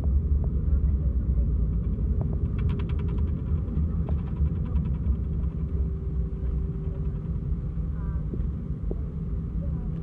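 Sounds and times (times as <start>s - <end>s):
low rumble of engines and wheels: 0.0s - 10.0s
rapid rattle of ticks: 1.7s - 7.6s.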